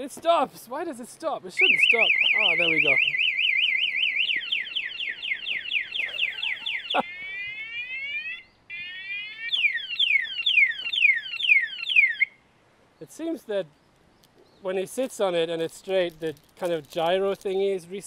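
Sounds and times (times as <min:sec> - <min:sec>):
motorcycle alarm siren: 0:01.6 - 0:12.4.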